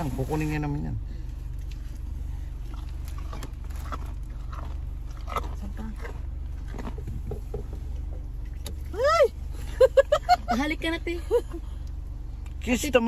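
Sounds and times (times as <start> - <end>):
car engine idling: 0.0 - 13.0
elk chewing a carrot: 1.2 - 8.9.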